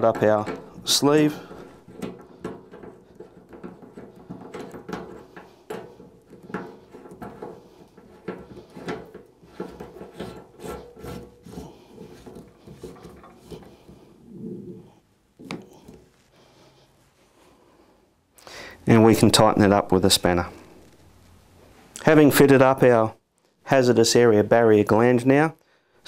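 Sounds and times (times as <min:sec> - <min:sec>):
small metal clicks and knocks: 0:00.0 - 0:14.1
fingers rubbing on metal: 0:00.0 - 0:16.0.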